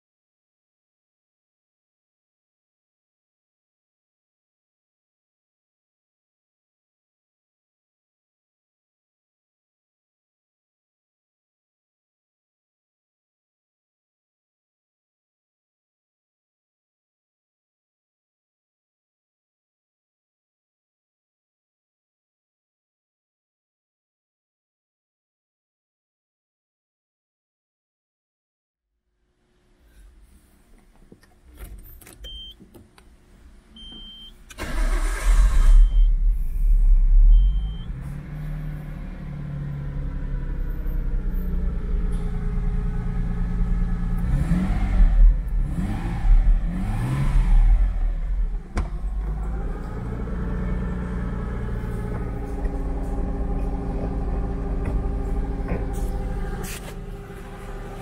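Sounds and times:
short beeps: 0:32.2 - 0:32.6, 0:33.8 - 0:34.4, 0:35.7 - 0:36.2, 0:37.2 - 0:38.0
car engine starting and idling: 0:33.8 - 0:58.0
engine throttle blips: 0:33.8 - 0:58.0.

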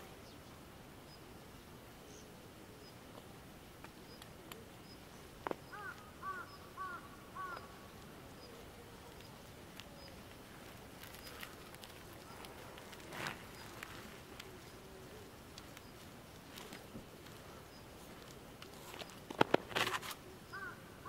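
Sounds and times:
crow cawing: 0:05.7 - 0:07.9, 0:20.5 - 0:21.0.

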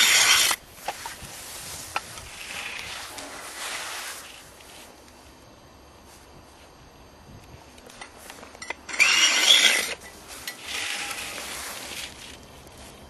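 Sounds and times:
tool scraping ice: 0:00.0 - 0:00.6, 0:08.9 - 0:12.2.

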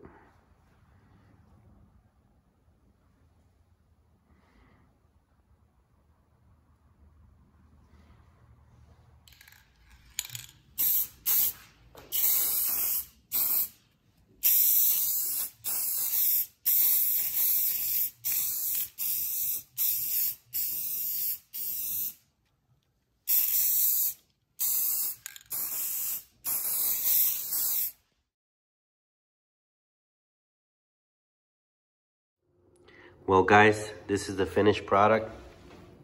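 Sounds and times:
spray paint can hissing bursts: 0:10.2 - 0:13.8, 0:14.4 - 0:22.2, 0:23.3 - 0:28.0.

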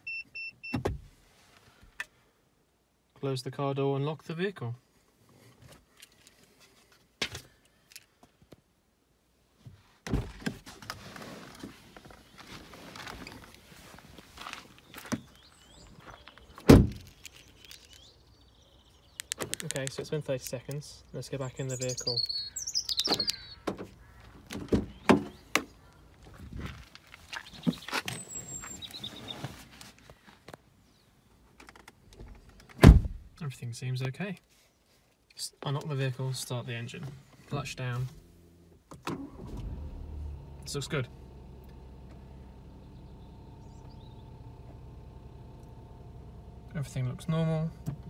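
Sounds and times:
car door clicks and thumps: 0:00.7 - 0:01.1, 0:10.0 - 0:10.7, 0:16.6 - 0:17.1, 0:22.9 - 0:25.7, 0:31.6 - 0:33.3
car door shutting: 0:00.7 - 0:01.1, 0:16.6 - 0:17.2, 0:32.2 - 0:33.3
rustles in car seat: 0:09.7 - 0:15.3, 0:26.3 - 0:30.5.

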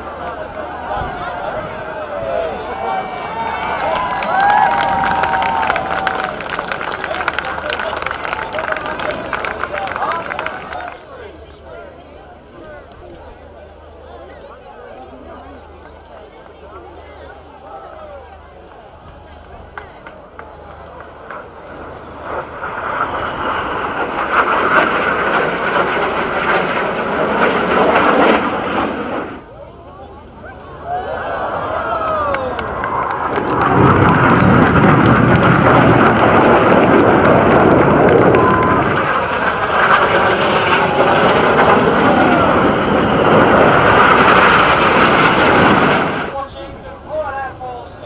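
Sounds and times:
jets flying past: 0:20.4 - 0:29.6, 0:31.0 - 0:47.6.

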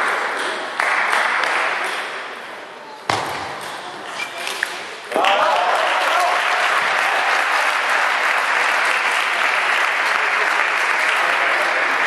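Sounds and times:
spectators applauding: 0:05.2 - 0:12.0.

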